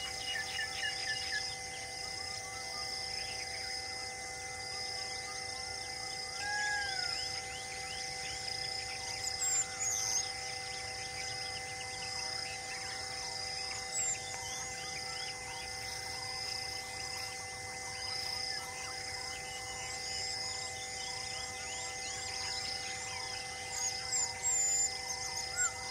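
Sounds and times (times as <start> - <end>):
insects chorus with high buzz: 0.0 - 25.9.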